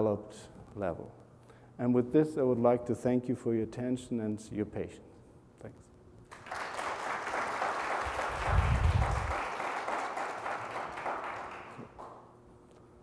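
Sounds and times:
audience applauding: 0:06.3 - 0:12.2.

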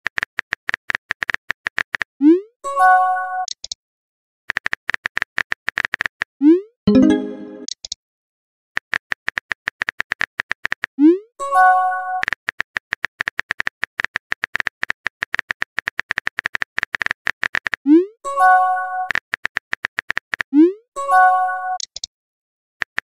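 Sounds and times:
multi-note chime: 0:06.9 - 0:07.7
phone keyboard typing clicks: 0:21.8 - 0:22.1.

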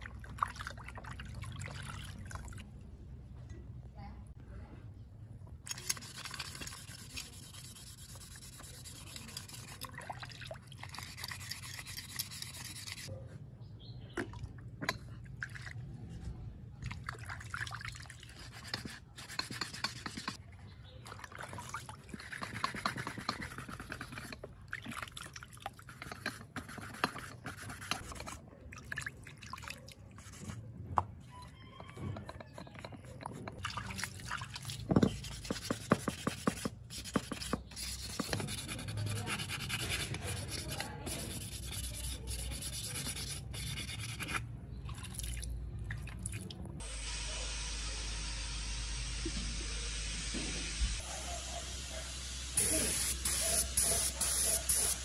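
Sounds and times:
water dripping and sloshing: 0:00.0 - 0:02.7, 0:09.7 - 0:11.8, 0:14.2 - 0:16.0, 0:16.8 - 0:18.4, 0:20.8 - 0:22.5, 0:24.3 - 0:26.1, 0:28.2 - 0:30.2, 0:33.1 - 0:35.2, 0:44.8 - 0:46.8
wet sandpaper scrubbing metal: 0:05.7 - 0:09.9, 0:10.9 - 0:13.1, 0:18.3 - 0:20.4, 0:22.1 - 0:24.4, 0:25.9 - 0:28.3, 0:35.1 - 0:44.4, 0:52.6 - 0:55.0.

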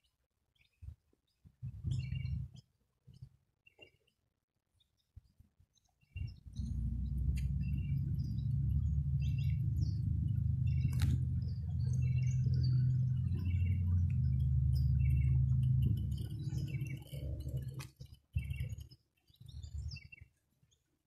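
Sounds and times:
small birds chirping: 0:00.0 - 0:21.0
loud low rumble: 0:06.5 - 0:17.8.

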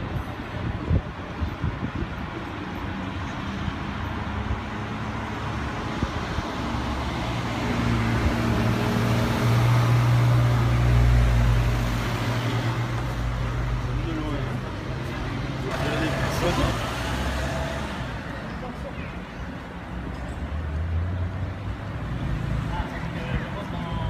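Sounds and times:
light street traffic: 0:00.0 - 0:24.0
car engine passing: 0:03.5 - 0:18.4.

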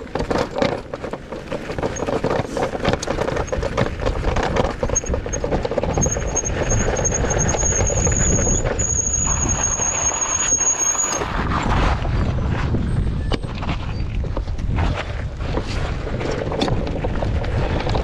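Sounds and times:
electric bike rumbling over rocks: 0:00.0 - 0:18.0
high-pitched squeal: 0:06.0 - 0:11.4.

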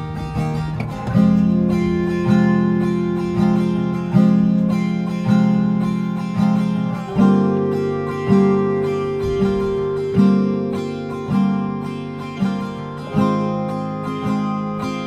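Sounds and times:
strummed stringed instrument chords: 0:00.0 - 0:15.0.

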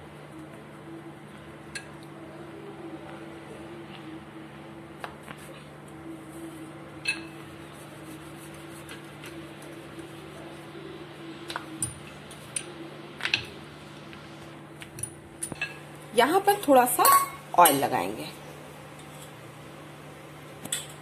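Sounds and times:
steady low hum: 0:00.0 - 0:21.0
rolling pin rolling dough: 0:07.4 - 0:14.9.

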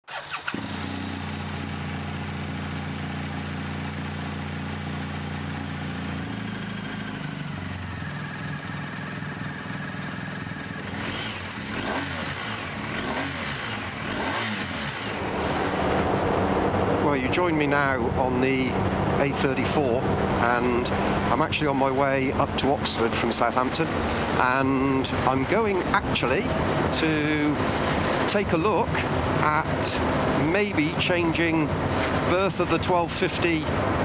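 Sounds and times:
motorcycle throttle revving: 0:00.1 - 0:16.8
motorcycle engine idling: 0:00.2 - 0:17.0.

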